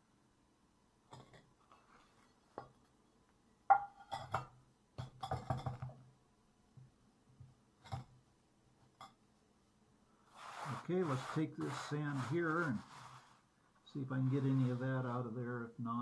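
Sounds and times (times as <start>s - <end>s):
clay pots clinking and knocking: 1.1s - 1.6s, 3.7s - 6.1s, 7.8s - 8.2s.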